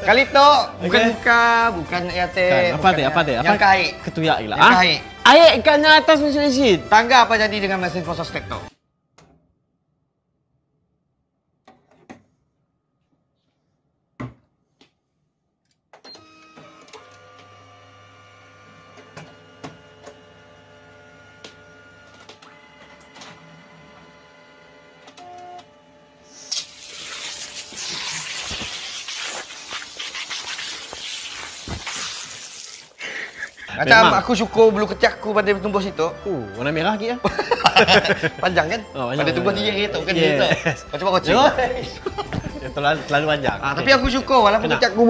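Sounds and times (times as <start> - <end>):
photocopier running: 16.1 - 26.2
photocopier spraying hiss: 26.2 - 33.7.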